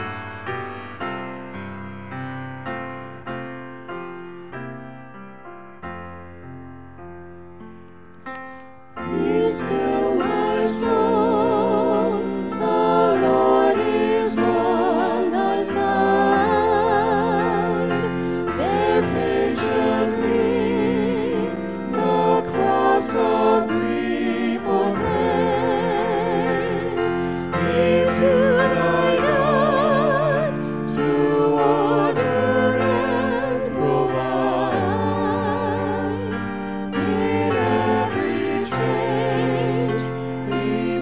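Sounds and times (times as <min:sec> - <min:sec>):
voices singing a hymn: 0:08.9 - 0:41.0.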